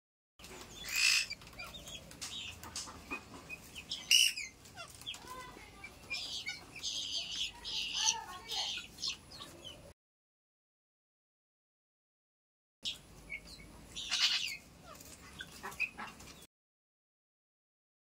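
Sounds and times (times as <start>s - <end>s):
guinea fowl chicks calling: 0.4s - 9.9s, 12.9s - 16.5s.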